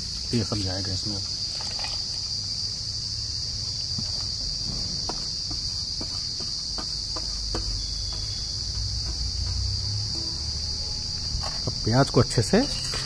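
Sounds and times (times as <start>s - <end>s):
crickets chirring: 0.0s - 13.0s.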